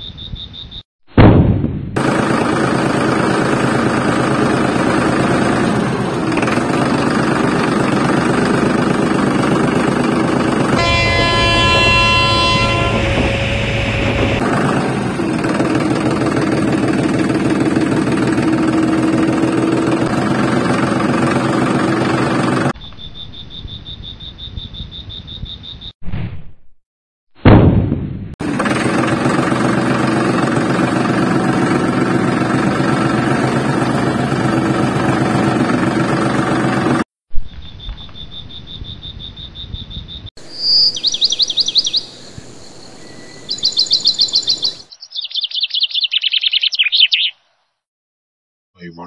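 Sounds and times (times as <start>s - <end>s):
small vehicle running: 2.0s - 22.8s, 28.4s - 37.0s
high steady tone: 10.7s - 14.5s
vehicle horn: 10.7s - 15.2s.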